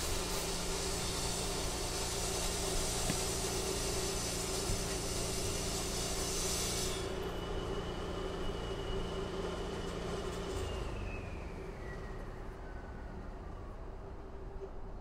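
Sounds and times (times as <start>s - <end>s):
high hiss: 0.0s - 7.2s
heavy machinery humming: 0.0s - 12.3s.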